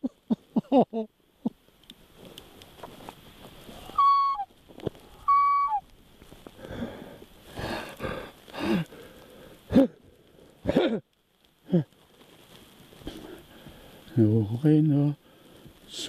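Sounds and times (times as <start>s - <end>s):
wheezing gasping breaths: 6.6s - 11.0s, 13.0s - 14.1s
man sobbing: 9.7s - 12.0s.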